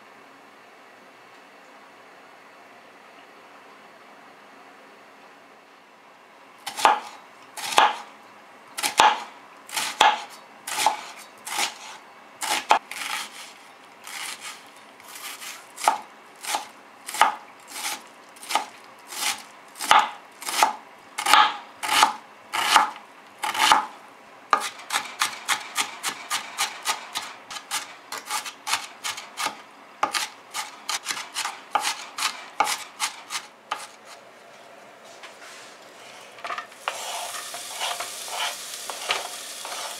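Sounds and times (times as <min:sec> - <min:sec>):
knife chopping on plastic board: 0:06.7 - 0:08.1, 0:08.8 - 0:13.4, 0:15.1 - 0:23.9, 0:24.6 - 0:34.0.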